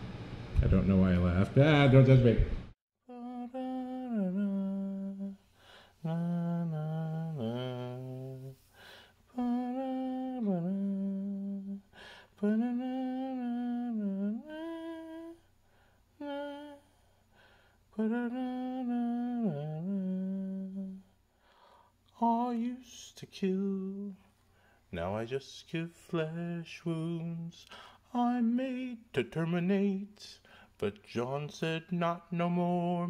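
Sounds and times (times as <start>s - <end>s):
man humming a slow melody: 3.1s - 5.4s, 6.0s - 8.6s, 9.3s - 15.5s, 16.2s - 17.0s, 18.0s - 21.1s.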